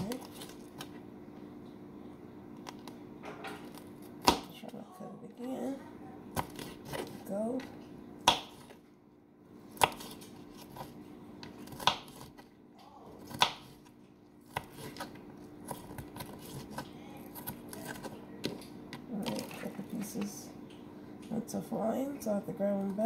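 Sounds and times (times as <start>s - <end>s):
knife chopping on wooden board: 8.2s - 8.8s, 9.8s - 10.9s, 11.5s - 12.4s, 13.2s - 13.8s.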